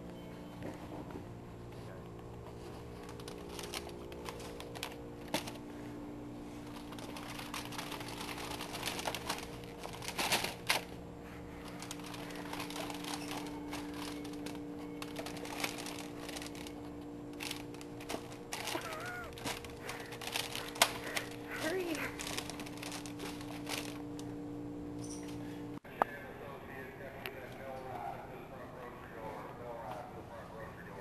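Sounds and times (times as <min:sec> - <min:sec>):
steady low hum: 0:00.0 - 0:31.0
packages being handled: 0:00.1 - 0:24.4.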